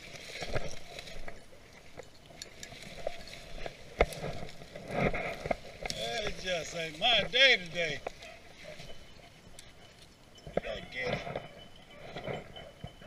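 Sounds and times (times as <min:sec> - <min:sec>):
footsteps in snow and leaves: 0:00.0 - 0:10.1
brush rustling against clothing: 0:00.0 - 0:10.2.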